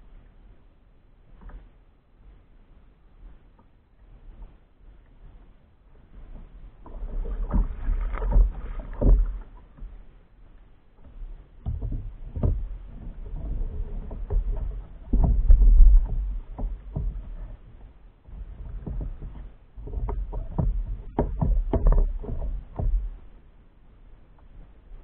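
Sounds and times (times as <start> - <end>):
water sloshing against hull: 0.0 - 25.0
fishing gear knocking on kayak: 18.7 - 23.1.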